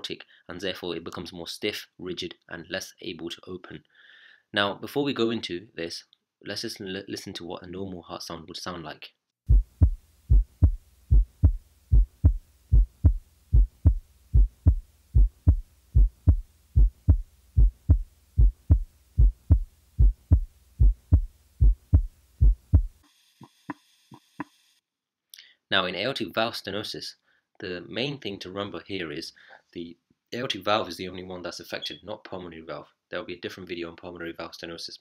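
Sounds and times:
heartbeat lub-dub: 9.5 - 23.0.

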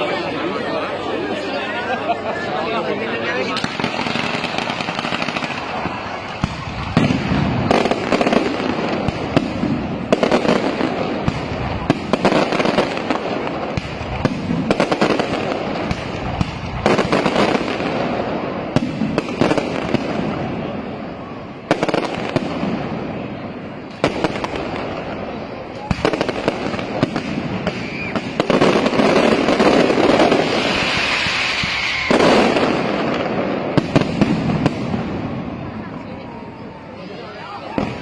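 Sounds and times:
fireworks crackle: 2.2 - 38.0.

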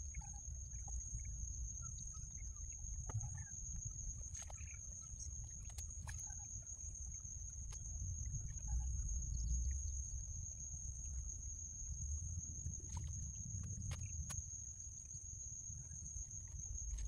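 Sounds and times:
wind rumble on microphone: 0.1 - 17.0.

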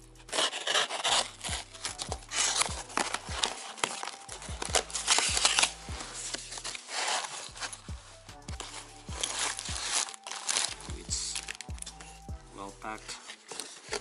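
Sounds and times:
cardboard box being torn open: 0.3 - 7.8, 8.6 - 11.6.

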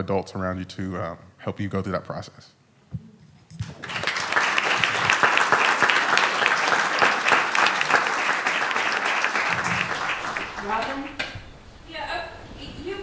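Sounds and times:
audience applauding: 3.6 - 11.3.

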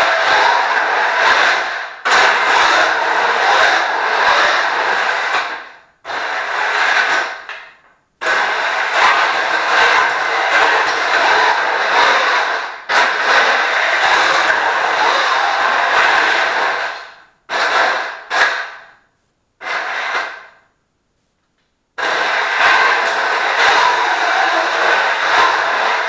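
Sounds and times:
robot electric motors running: 0.0 - 5.4, 8.2 - 16.9, 22.0 - 26.0.

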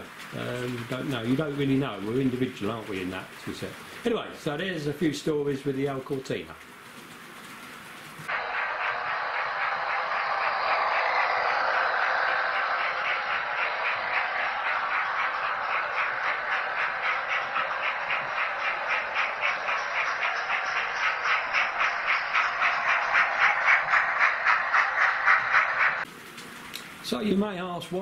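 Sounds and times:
model train wheels whirring: 0.0 - 27.3
clicking over rail joints: 6.1 - 26.9.

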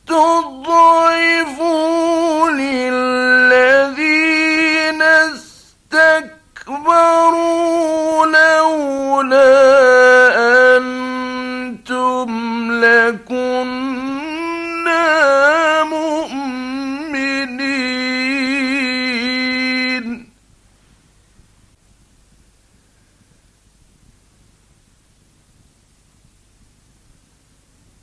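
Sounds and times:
man reciting melodically: 0.0 - 20.4.

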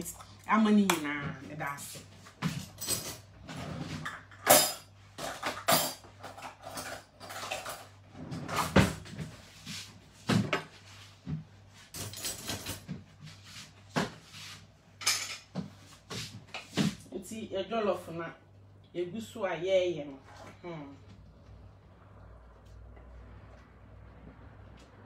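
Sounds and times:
pots and utensils clattering: 2.5 - 9.1, 15.0 - 15.7.

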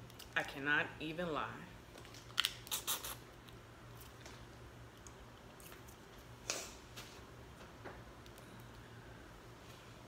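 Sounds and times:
biting and sucking crawfish: 2.2 - 4.2
chewing with faint clicks: 3.4 - 6.2.

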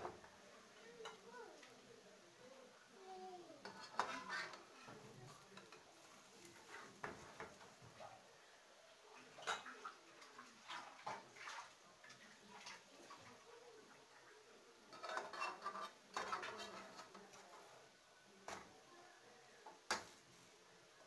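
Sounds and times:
pancake frying crackles: 2.9 - 8.1, 8.7 - 18.8.

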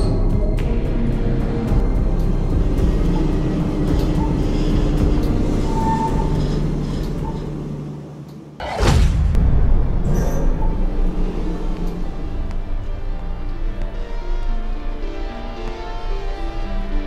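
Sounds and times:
cinematic soundtrack music: 0.0 - 17.0
sudden loud hit: 8.6 - 12.4.

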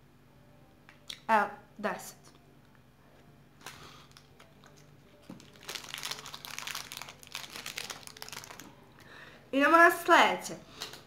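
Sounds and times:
plastic wrapper crinkling: 3.6 - 8.8.

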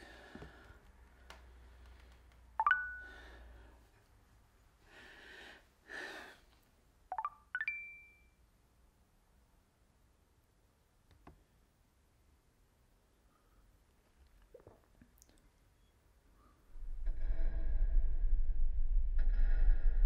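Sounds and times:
soft breaths: 0.0 - 6.8.

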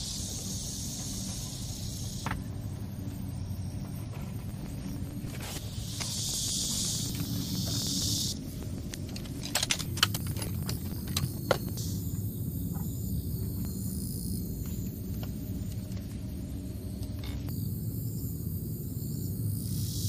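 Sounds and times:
high hiss: 0.0 - 2.5, 5.4 - 8.5
insects chirring: 0.0 - 20.0
low outdoor rumble: 0.0 - 20.0
camping gear clicking and knocking: 8.6 - 11.8.

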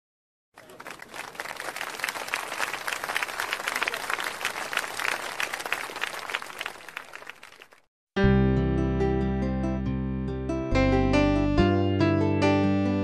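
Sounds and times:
hands clapping: 0.6 - 7.9.

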